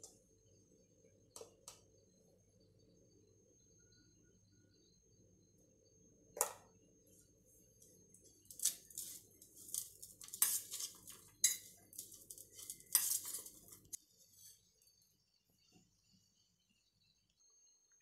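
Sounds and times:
steel spoon scraping a bowl: 8.4s - 14.7s.

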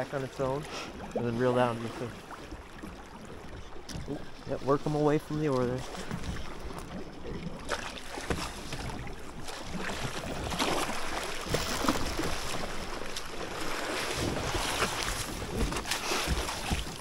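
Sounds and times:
fish thrashing and splashing: 5.9s - 17.0s.

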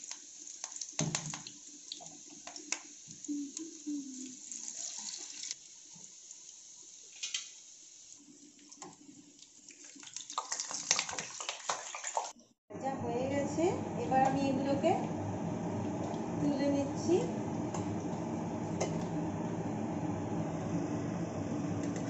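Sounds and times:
deep-frying sizzle with pops: 0.0s - 11.2s.

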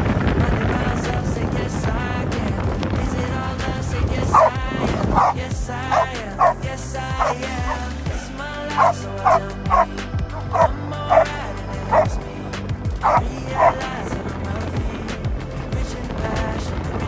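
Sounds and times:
background music: 0.0s - 17.0s
dog barking: 4.3s - 6.6s, 7.2s - 7.9s, 8.8s - 11.3s, 13.0s - 13.8s.

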